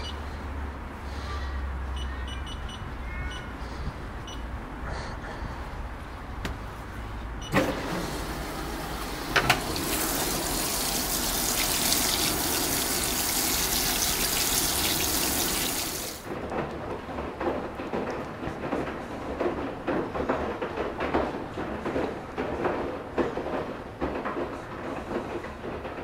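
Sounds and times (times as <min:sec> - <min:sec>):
washing machine clicks: 0:07.4 - 0:13.0
water rushing in with hiss: 0:07.8 - 0:16.2.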